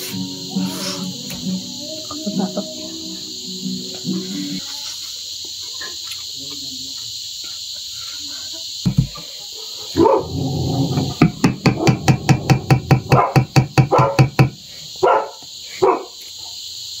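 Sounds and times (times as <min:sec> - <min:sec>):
insects chirring: 0:00.0 - 0:17.0
dog barking: 0:09.5 - 0:14.4, 0:15.0 - 0:16.6.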